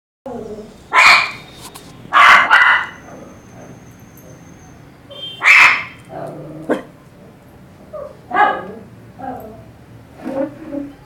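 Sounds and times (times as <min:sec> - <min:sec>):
dog barking: 0:00.9 - 0:01.4, 0:02.1 - 0:03.8, 0:05.4 - 0:06.0, 0:08.0 - 0:08.8.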